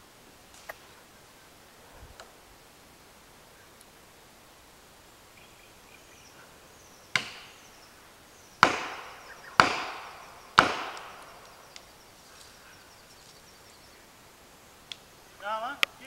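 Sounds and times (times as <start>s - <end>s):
hammer striking wedge: 8.6s - 9.0s, 10.6s - 11.0s.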